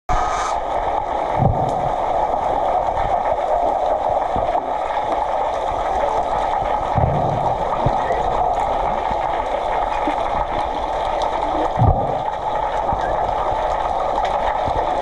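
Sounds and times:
underwater rushing hiss: 0:00.1 - 0:00.8
dull low thump: 0:01.3 - 0:02.0, 0:06.9 - 0:08.1, 0:11.8 - 0:12.3.

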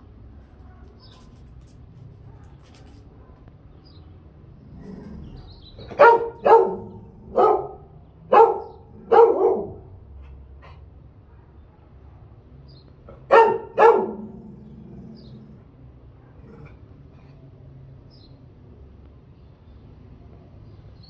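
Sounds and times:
dog barking: 0:05.8 - 0:10.0, 0:13.1 - 0:14.5.

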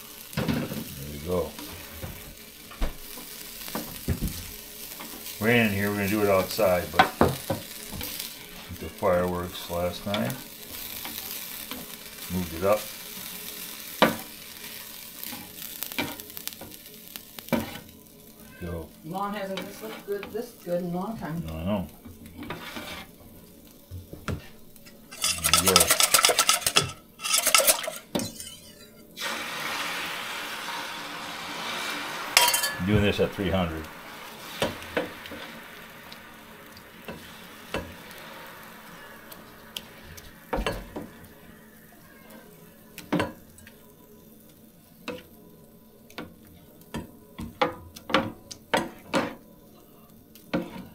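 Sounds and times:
food sizzling on griddle: 0:00.0 - 0:50.9
utensil clacking on griddle: 0:24.3 - 0:29.0, 0:32.4 - 0:32.9.

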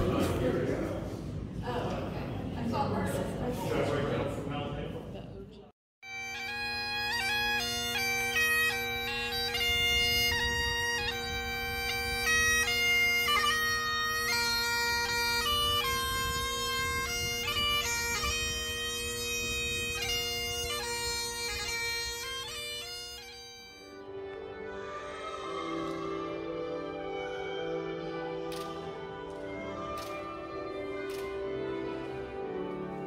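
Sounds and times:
bagpipes playing: 0:06.0 - 0:33.0
soft music: 0:22.3 - 0:33.0.

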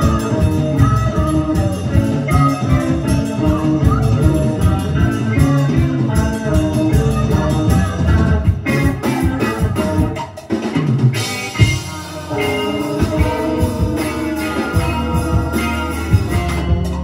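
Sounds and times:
accordion: 0:00.0 - 0:10.4, 0:11.5 - 0:17.0
electric guitars: 0:00.0 - 0:17.0
steady drum beat: 0:00.0 - 0:17.0.

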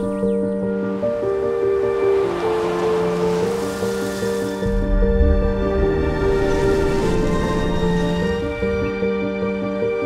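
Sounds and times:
low rumble: 0:04.6 - 0:09.1.

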